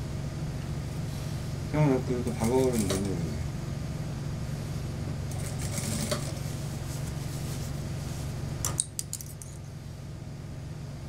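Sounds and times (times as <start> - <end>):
sewing machine running: 2.3 - 3.1, 5.3 - 6.4.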